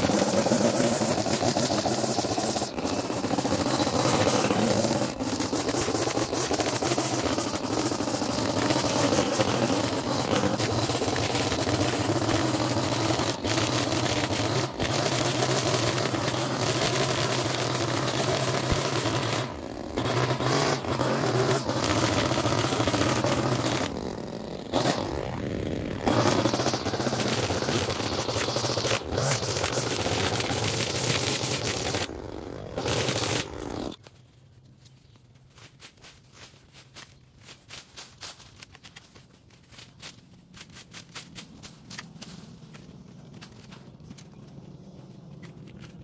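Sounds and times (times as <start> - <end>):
small gas engine running: 0.0 - 34.0.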